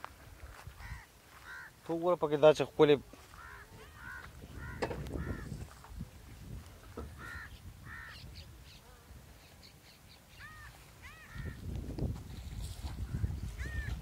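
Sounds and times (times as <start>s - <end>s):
crow-like caws: 0.8s - 1.8s, 3.2s - 5.8s, 7.1s - 8.2s, 10.4s - 11.6s, 13.1s - 13.9s
faint high bird chirps: 7.4s - 11.4s.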